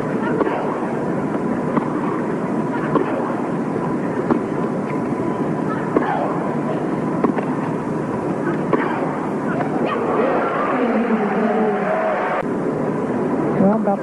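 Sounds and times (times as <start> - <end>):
crowd applauding: 10.2 - 12.4.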